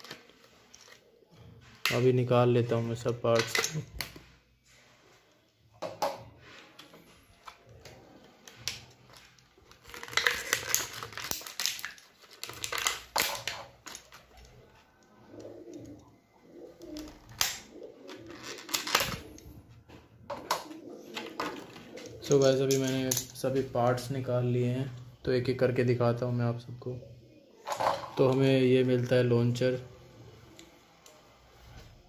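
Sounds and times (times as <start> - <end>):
plastic packaging crackling: 7.2 - 15.0, 17.0 - 19.5
low cooing: 15.1 - 19.7.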